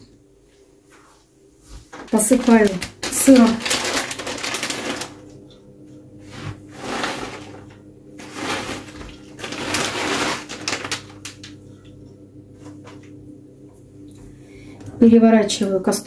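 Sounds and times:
faint steady hum: 0.0s - 16.0s
plastic bag rustling and crinkling: 1.8s - 5.3s, 6.2s - 11.6s.

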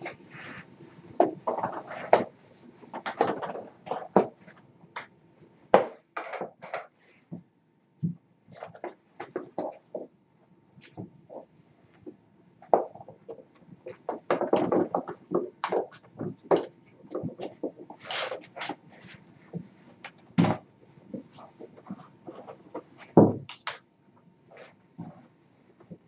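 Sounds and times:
rustling and clattering: 0.0s - 5.1s, 10.8s - 23.5s.

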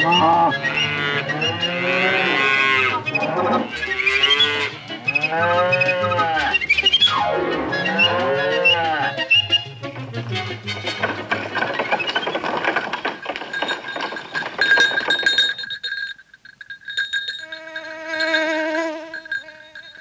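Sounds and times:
cattle mooing: 0.0s - 6.6s, 7.5s - 9.3s
background music: 0.0s - 12.0s.

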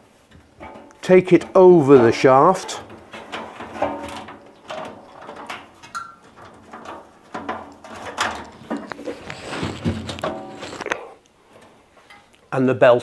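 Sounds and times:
knocks and clicks on metal drum: 0.3s - 8.9s.

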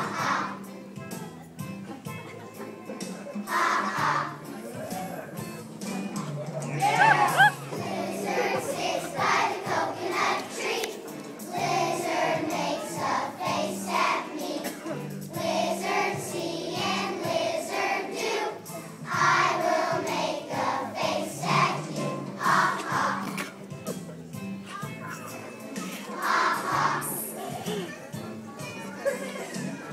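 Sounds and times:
children's choir singing: 0.0s - 0.8s, 3.1s - 4.7s, 7.0s - 23.4s, 25.8s - 28.0s
instrumental accompaniment with bass: 0.2s - 9.4s.

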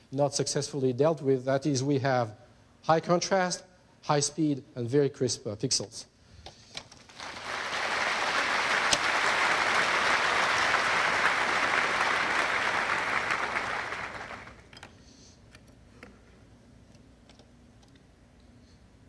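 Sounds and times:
audience applauding: 7.1s - 14.7s.

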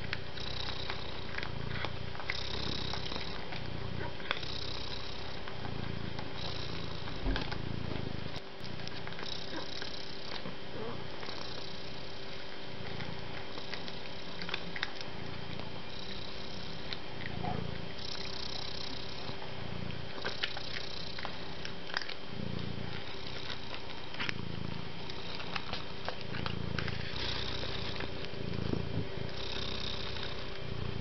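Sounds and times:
cat purring: 0.0s - 31.0s.

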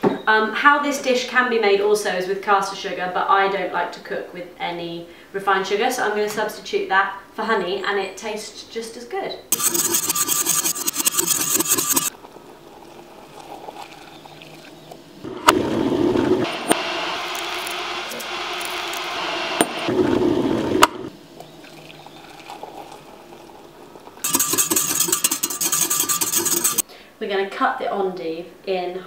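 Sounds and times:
whisk rattling in glass jug: 9.6s - 12.1s, 24.2s - 26.8s
hot water pouring into jug: 12.1s - 15.0s, 15.7s - 20.7s, 21.4s - 26.6s.

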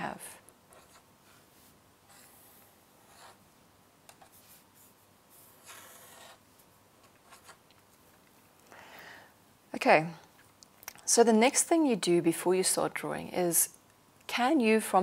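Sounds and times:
pen scratching on paper: 0.7s - 1.4s, 2.1s - 3.4s, 4.2s - 6.4s, 7.2s - 7.6s.

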